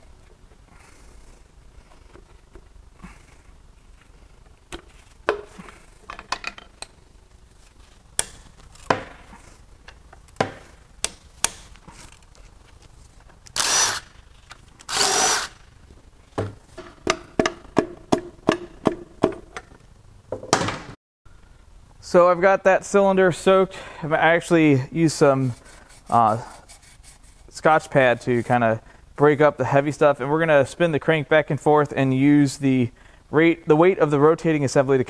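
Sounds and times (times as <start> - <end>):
noisy tool bursts: 13.6 - 14.2, 14.9 - 15.6.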